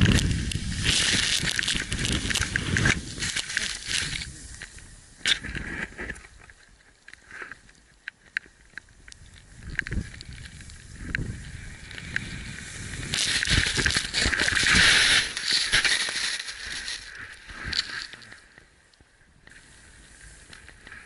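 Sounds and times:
wind buffeting microphone: 0.0s - 5.6s, 9.1s - 15.4s
snow hissing under sliding board: 0.2s - 5.2s, 10.8s - 18.3s, 19.5s - 21.0s.

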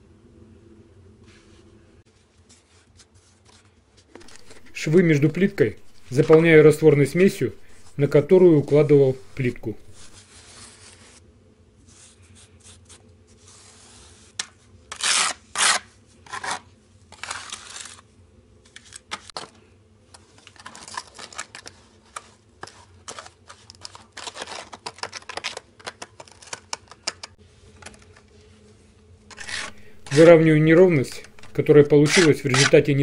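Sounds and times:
spatula scraping mortar on tiles: 4.2s - 10.2s, 29.3s - 33.0s.

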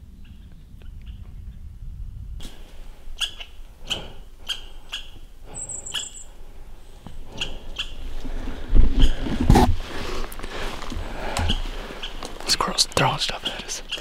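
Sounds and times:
footsteps crunching on dry ground: 8.2s - 12.8s.

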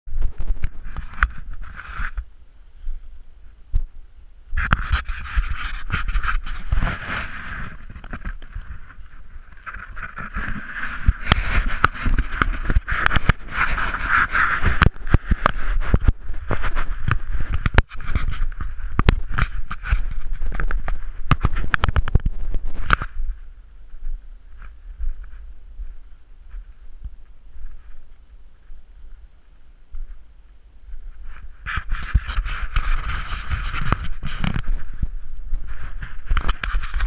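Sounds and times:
wind rumble: 0.1s - 37.0s
footsteps crunching on dry grass: 4.6s - 37.0s
camera handling noise: 9.6s - 23.2s.

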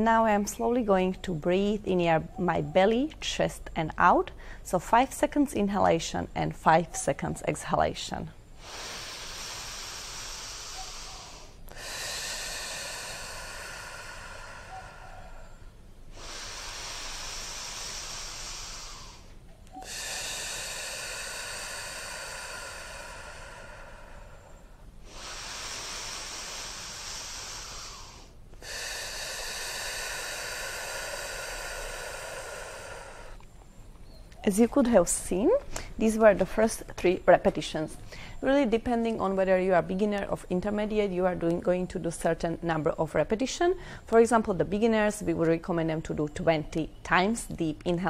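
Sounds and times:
woman breathing deeply: 4.3s - 4.7s, 8.4s - 34.2s, 38.0s - 38.4s, 43.8s - 44.1s.

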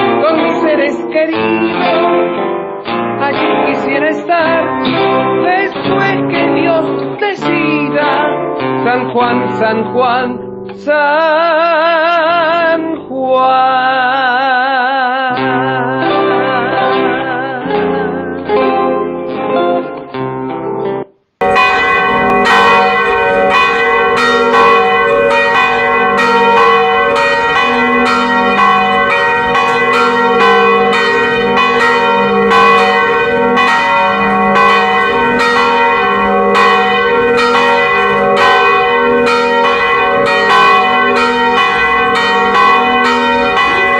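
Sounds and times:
church bells pealing: 0.0s - 8.6s, 21.4s - 43.9s.

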